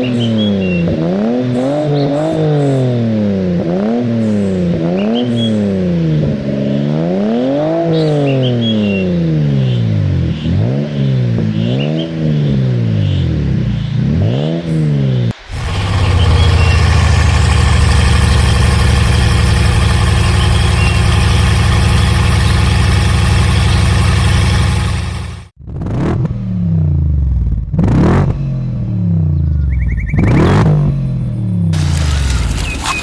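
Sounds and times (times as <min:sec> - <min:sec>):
car engine revving: 0:13.8 - 0:26.2, 0:31.7 - 0:33.0.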